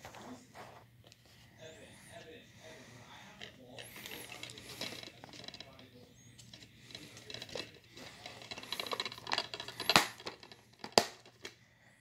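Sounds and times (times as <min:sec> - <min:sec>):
plastic case rubbing and clicking: 0:03.4 - 0:11.6.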